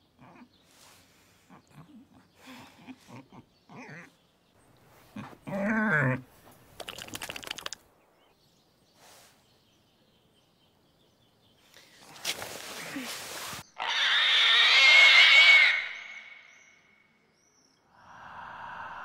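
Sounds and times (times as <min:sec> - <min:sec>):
animal crying: 0:13.8 - 0:16.5.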